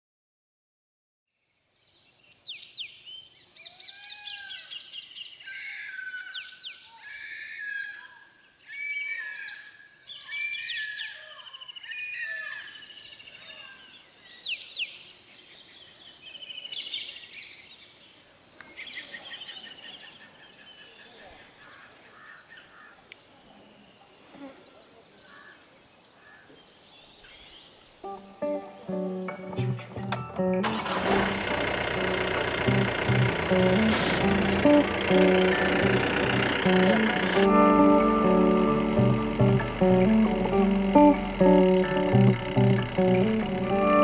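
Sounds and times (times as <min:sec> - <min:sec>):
faint outdoor hiss: 0:01.4 - 0:07.3, 0:08.1 - 0:44.0
birds chirping and trilling: 0:01.5 - 0:28.2, 0:29.0 - 0:29.9.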